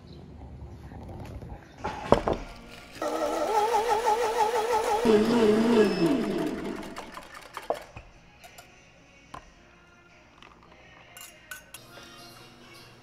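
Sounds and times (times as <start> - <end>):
music: 0.0 - 3.0, 5.0 - 13.0
spoon and glasses clinking: 8.3 - 8.8, 10.9 - 13.0.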